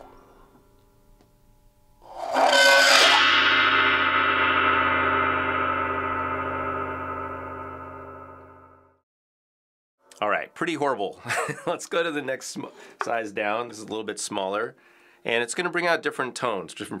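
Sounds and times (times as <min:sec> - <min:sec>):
harsh scrape on gong: 0:02.0 - 0:09.0
gong ringing: 0:02.3 - 0:09.0.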